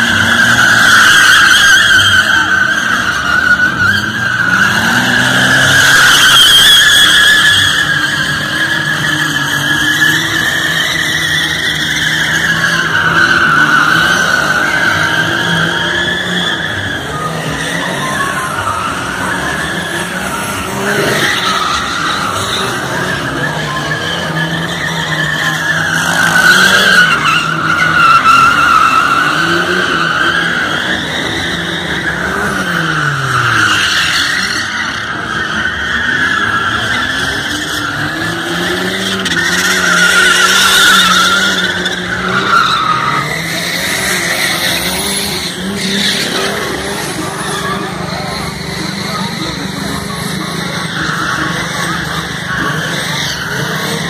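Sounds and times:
car engine revving high: 0.0s - 54.0s
car tyres squealing: 0.0s - 54.0s.

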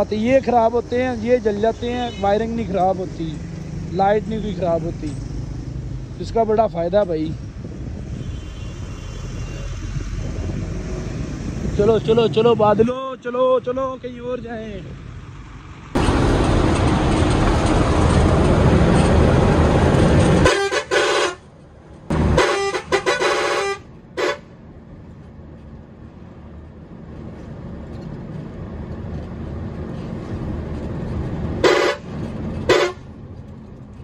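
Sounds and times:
road and engine noise: 0.0s - 34.0s
vehicle horn honking: 1.9s - 2.4s, 8.2s - 9.7s, 20.4s - 21.4s, 22.2s - 24.5s, 31.6s - 32.1s, 32.7s - 33.1s
loud rushing noise: 15.9s - 20.5s.

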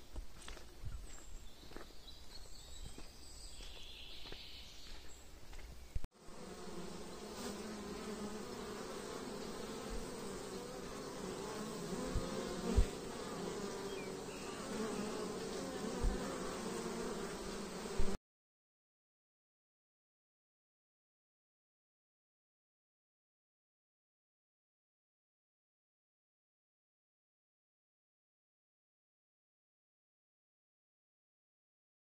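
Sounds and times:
footsteps on dirt track: 0.0s - 6.1s
honey bees buzzing: 6.2s - 18.2s.

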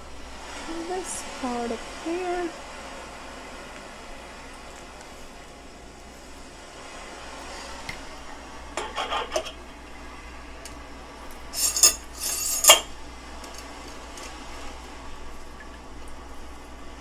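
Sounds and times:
steady low hum: 0.0s - 17.0s
metal parts clinking and scraping: 11.6s - 12.9s.

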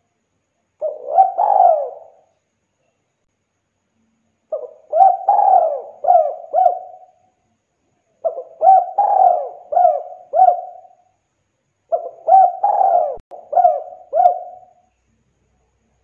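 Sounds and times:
dove cooing: 0.8s - 2.3s, 4.5s - 7.2s, 8.2s - 11.0s, 11.9s - 14.8s.

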